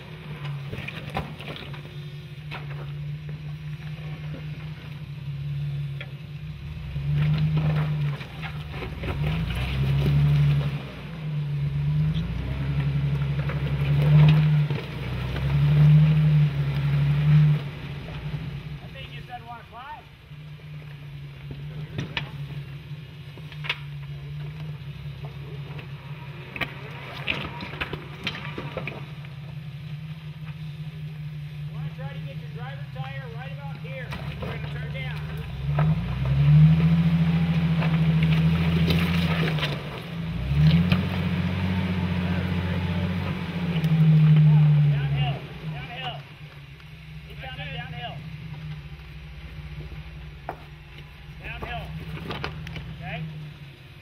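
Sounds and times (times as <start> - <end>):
engine revving in bursts: 6.6 - 19.2, 33.4 - 46.2.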